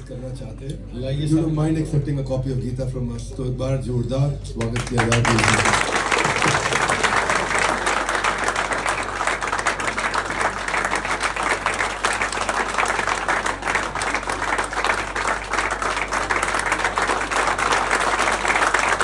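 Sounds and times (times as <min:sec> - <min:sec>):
crowd applauding: 0:04.6 - 0:19.0.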